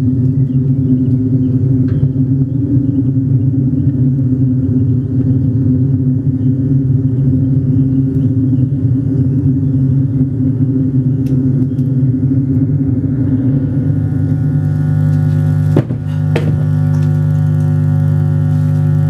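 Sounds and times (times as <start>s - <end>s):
low drone of held tones: 0.0s - 19.0s
sharp knocks: 15.7s - 16.6s.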